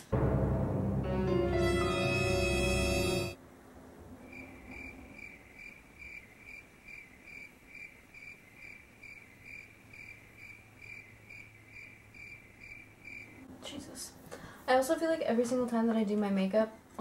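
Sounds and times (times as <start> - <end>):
cricket chirping: 4.0 - 13.5.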